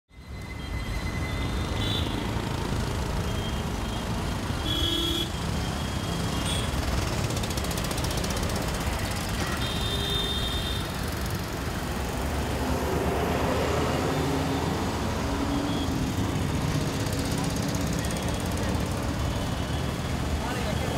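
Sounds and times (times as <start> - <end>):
road traffic engines: 0.1 - 20.9
bus engine passing close: 10.9 - 20.9.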